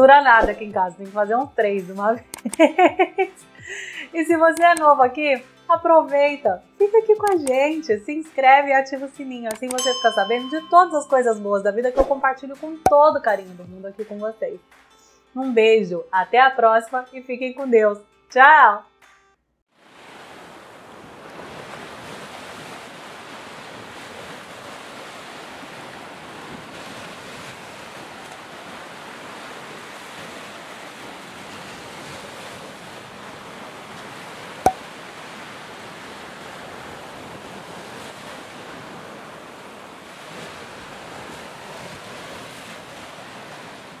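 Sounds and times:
sharp click: 0:02.2 - 0:02.7, 0:04.5 - 0:04.9, 0:07.2 - 0:07.6, 0:09.5 - 0:09.9
ocean surf washing onto beach: 0:19.8 - 0:44.0.

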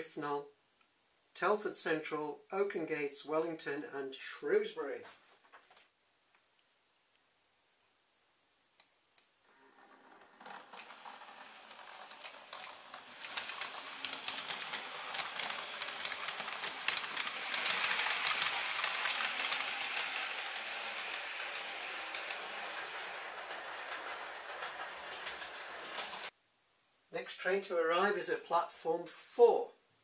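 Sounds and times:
model train motor whirring: 0:09.5 - 0:26.3
wheels clattering over rail joints: 0:09.5 - 0:26.3.

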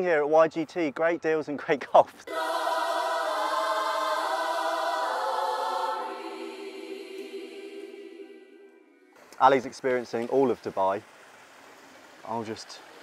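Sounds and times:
choir singing held chord: 0:02.2 - 0:09.2.

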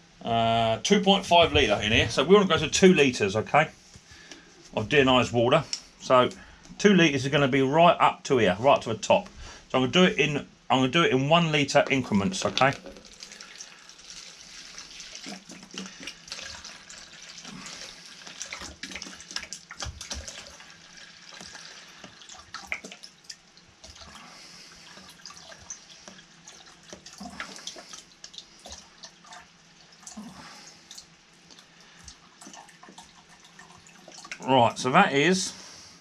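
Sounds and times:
water trickling into plastic jug: 0:11.6 - 0:34.8.

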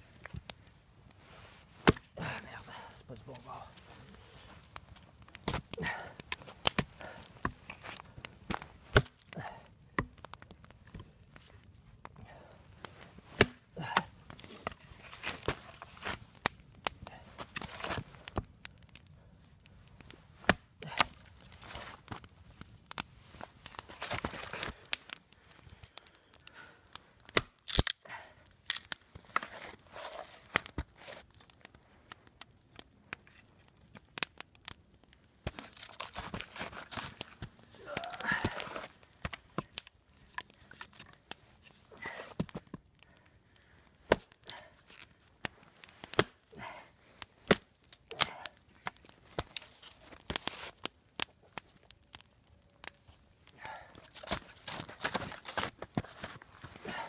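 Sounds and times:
hatchet chopping wood: 0:01.8 - 0:02.0, 0:13.4 - 0:14.1
wood tearing apart: 0:13.4 - 0:18.4, 0:27.2 - 0:28.0, 0:28.6 - 0:31.6, 0:35.4 - 0:43.1, 0:53.7 - 0:57.0
rustling: 0:53.7 - 0:57.0.

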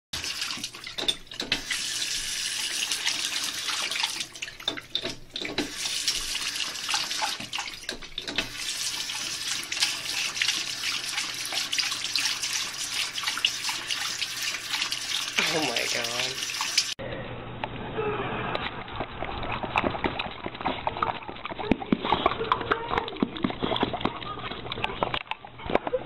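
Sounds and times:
faucet water running and splashing: 0:00.1 - 0:17.0.

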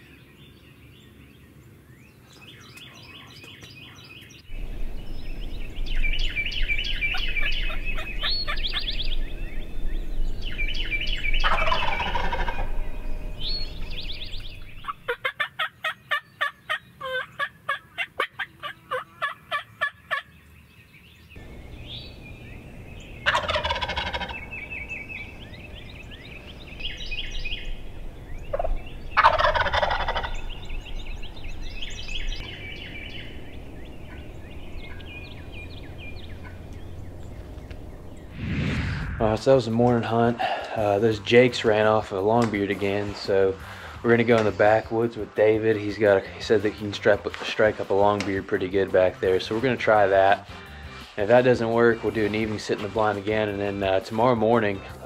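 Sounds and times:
short evenly spaced bird calls: 0:00.0 - 0:38.4, 0:40.0 - 0:55.0
small chirping calls: 0:00.0 - 0:38.4
turkeys gobbling: 0:06.3 - 0:09.0, 0:11.4 - 0:20.3, 0:22.6 - 0:25.8, 0:28.2 - 0:31.0, 0:34.0 - 0:37.7.

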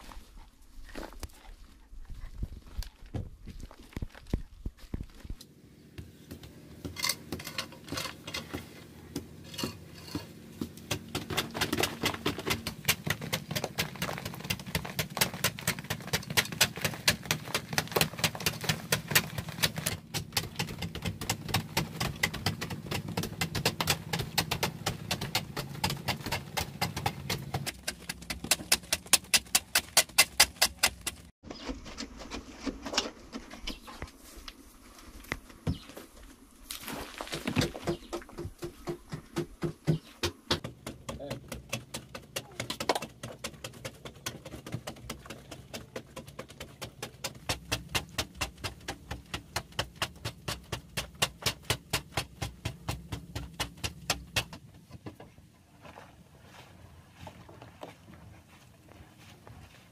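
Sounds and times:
scraping and scooping soil: 0:00.0 - 0:05.5, 0:06.6 - 0:38.5, 0:55.5 - 0:59.9
hoes striking hard clay: 0:10.6 - 0:31.3, 0:37.5 - 0:54.6.

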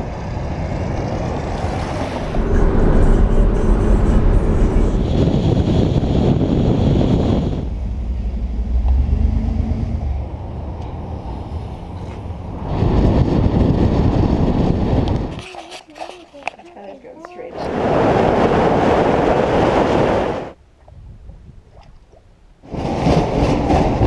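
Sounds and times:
car road noise from inside: 0:01.4 - 0:12.7.

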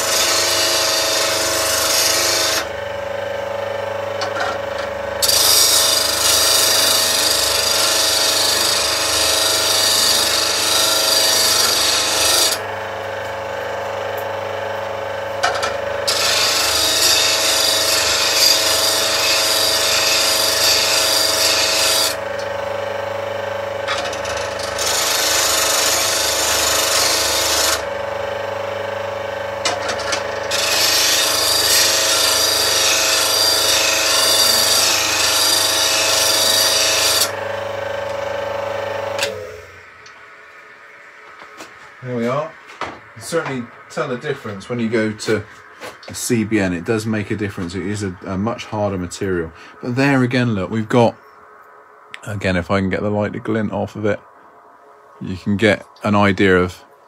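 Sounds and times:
steel grinding on wheel: 0:00.0 - 0:02.7, 0:04.2 - 0:12.7, 0:15.4 - 0:22.5, 0:23.8 - 0:27.9, 0:29.6 - 0:37.4
bench grinder motor hum: 0:00.0 - 0:42.4.

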